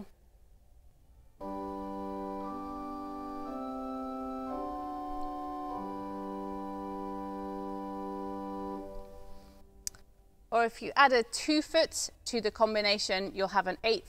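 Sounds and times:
pipe organ chords: 1.4 - 9.6.

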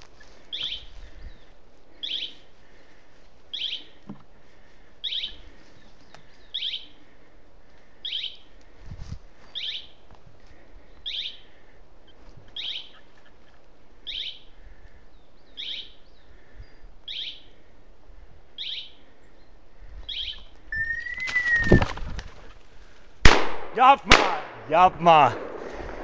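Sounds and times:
short whistle: 20.8 - 21.8
bird wings flapping: 20.9 - 22.7.

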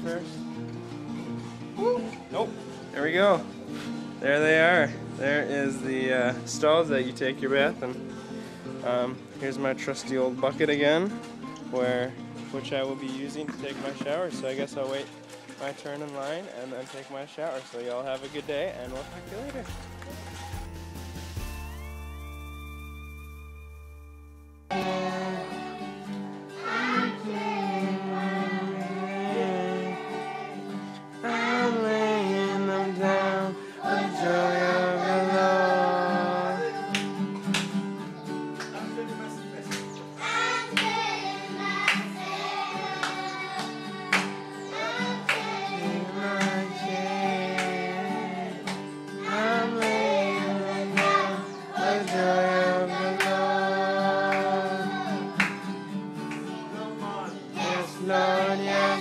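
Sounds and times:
guitar accompaniment: 0.0 - 16.2, 18.2 - 59.0
children singing a worship song: 24.7 - 37.3, 40.1 - 59.0.

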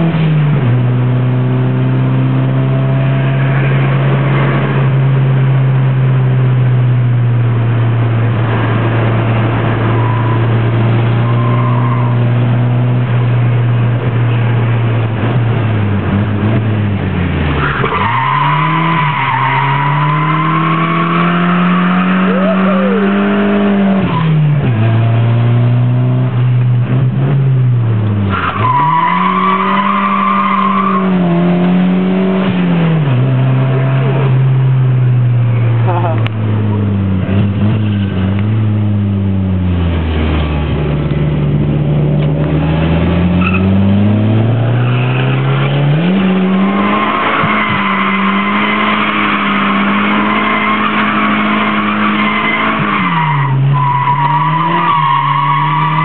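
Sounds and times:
car engine revving: 0.0 - 56.0
tyres squealing: 17.6 - 23.6.

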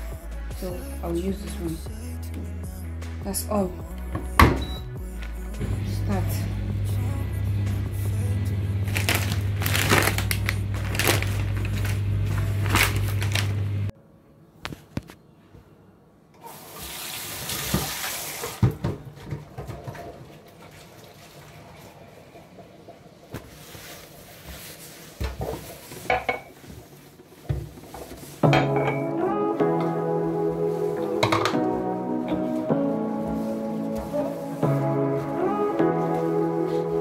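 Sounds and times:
dishwasher pump hum: 5.6 - 13.9.

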